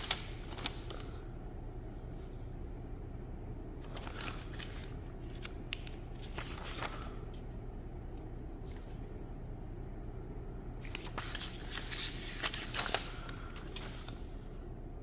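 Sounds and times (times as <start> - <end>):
paper pages flipping: 0.0 - 1.2, 3.8 - 7.4, 10.8 - 14.5
low steady hum: 0.0 - 15.0.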